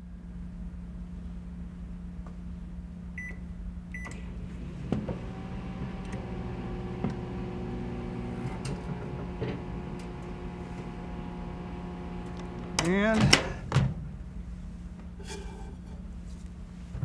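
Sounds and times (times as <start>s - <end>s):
microwave keypad beeping: 3.2s - 3.4s
microwave oven humming: 3.2s - 13.7s
microwave starting thunk: 4.0s - 14.0s.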